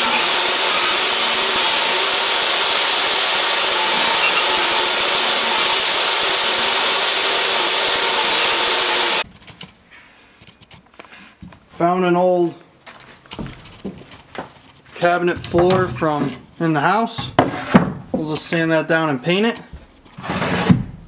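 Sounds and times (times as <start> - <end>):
saw blade cutting wood: 0.0 - 9.2
table saw motor whine: 0.0 - 9.2.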